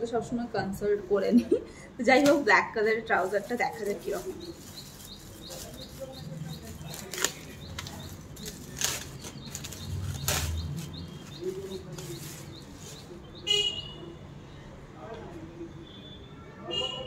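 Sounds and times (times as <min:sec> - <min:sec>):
plastic bag rustling and crinkling: 0:02.2 - 0:13.1.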